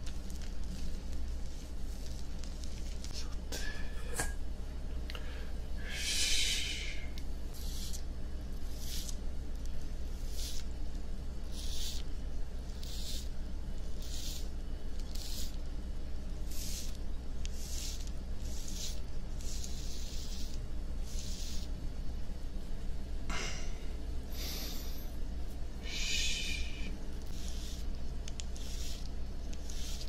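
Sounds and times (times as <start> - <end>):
razor rasping on stubble: 7.5 - 9.2, 10.1 - 10.8, 11.4 - 15.7, 16.4 - 21.8, 26.0 - 30.0.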